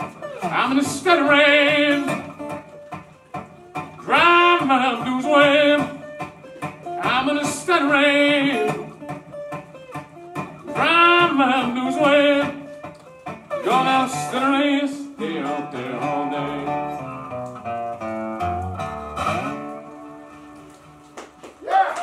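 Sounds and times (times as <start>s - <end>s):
man singing blues: 0.0s - 2.9s, 3.7s - 9.6s, 10.3s - 18.3s
resonator guitar playing: 0.0s - 21.2s.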